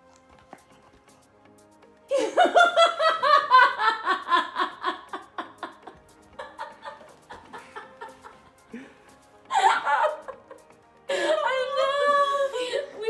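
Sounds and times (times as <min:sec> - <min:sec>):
woman laughing and crying: 0:02.1 - 0:08.8, 0:09.5 - 0:13.0.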